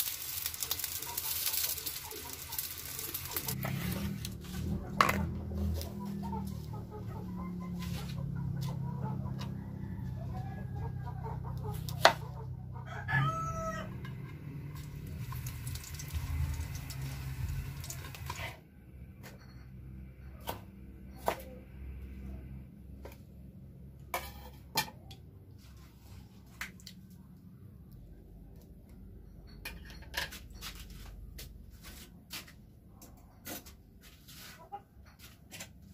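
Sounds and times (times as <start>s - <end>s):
chicken calling: 5.6s - 14.1s.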